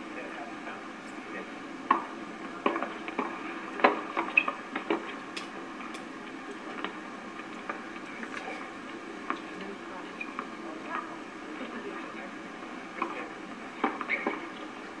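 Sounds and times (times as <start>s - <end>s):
tennis balls hit by rackets: 1.9s - 5.5s.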